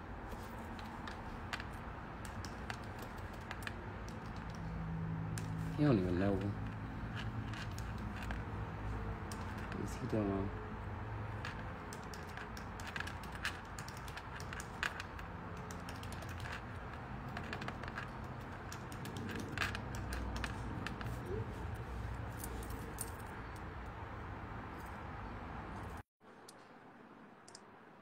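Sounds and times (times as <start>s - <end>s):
computer keyboard typing: 0.8s - 5.7s, 6.6s - 8.5s, 9.1s - 10.1s, 11.3s - 21.2s.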